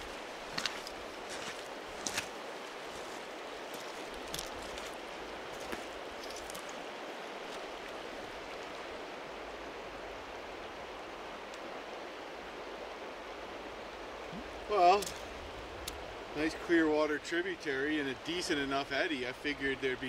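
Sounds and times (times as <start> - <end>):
footsteps on gravel: 0.0 - 6.8
river water flowing over gravel: 0.0 - 20.0.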